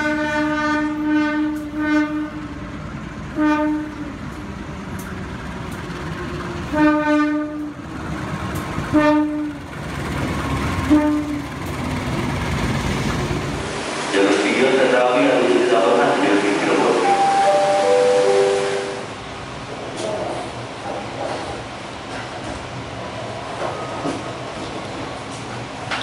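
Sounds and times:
locomotive horn blasts: 0:00.0 - 0:02.5, 0:03.3 - 0:04.1, 0:06.7 - 0:07.7, 0:08.9 - 0:09.6, 0:10.9 - 0:11.4, 0:17.2 - 0:19.1
train rolling past: 0:00.0 - 0:26.0
wheels clacking over rail joints: 0:04.0 - 0:13.7.

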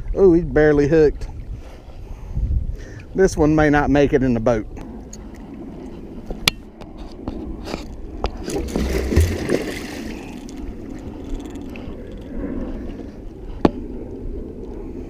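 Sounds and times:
fish thrashing and splashing: 0:08.3 - 0:12.3.

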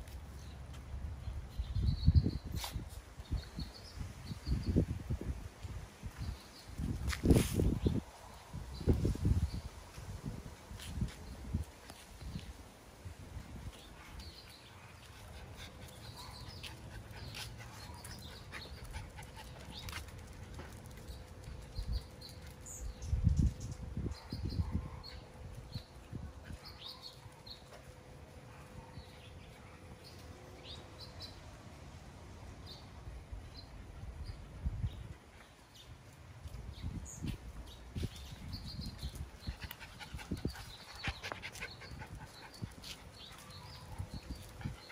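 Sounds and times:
puppies' paws clicking and scuffing: 0:13.5 - 0:23.9, 0:35.3 - 0:44.9.

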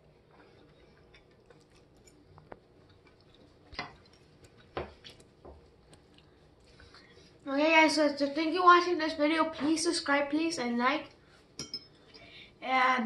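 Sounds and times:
forks tapping on plates: 0:11.6 - 0:11.9.

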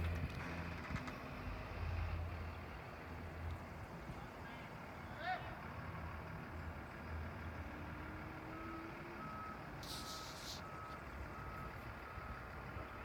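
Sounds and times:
reversing alarm beeping: 0:08.4 - 0:13.0
brief hiss: 0:09.8 - 0:11.0.

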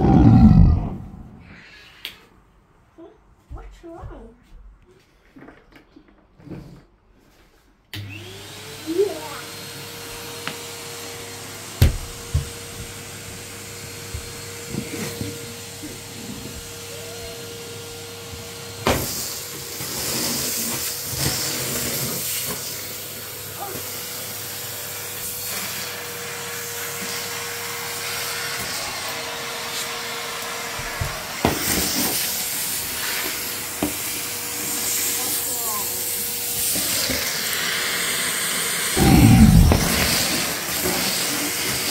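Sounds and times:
vacuum cleaner motor whine: 0:08.0 - 0:35.2.

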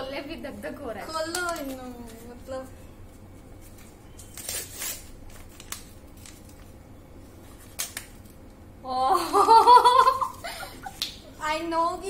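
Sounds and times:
wrapping paper crinkling and tearing: 0:03.5 - 0:06.8.

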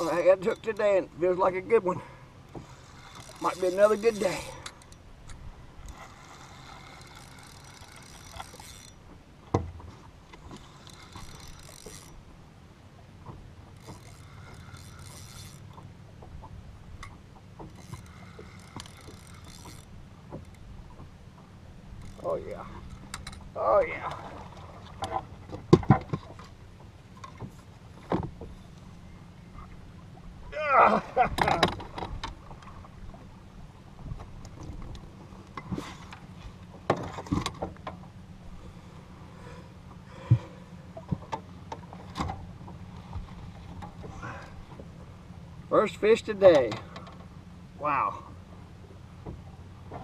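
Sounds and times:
fishing reel ratcheting: 0:02.6 - 0:09.0, 0:10.6 - 0:12.2, 0:13.8 - 0:15.8, 0:17.0 - 0:19.9, 0:22.0 - 0:23.5
knocks and splashy thumps on boat: 0:08.5 - 0:10.6, 0:22.6 - 0:28.6, 0:30.4 - 0:38.2, 0:40.1 - 0:45.0, 0:49.2 - 0:50.0.

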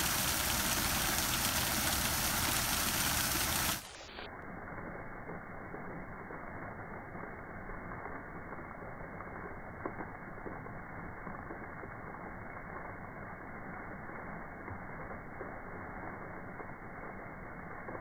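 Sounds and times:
fountain water splashing onto rocks: 0:00.0 - 0:18.0.

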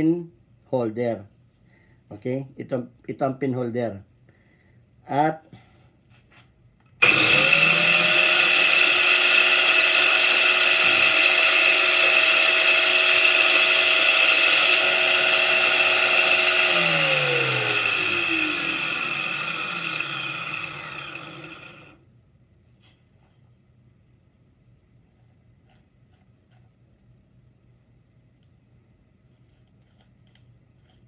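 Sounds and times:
angle grinder whining: 0:07.0 - 0:22.0.

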